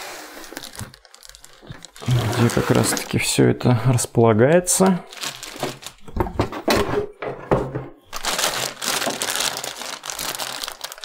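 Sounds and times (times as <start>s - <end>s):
cardboard packaging crinkling: 0.0s - 3.4s, 4.6s - 6.1s, 8.1s - 11.0s.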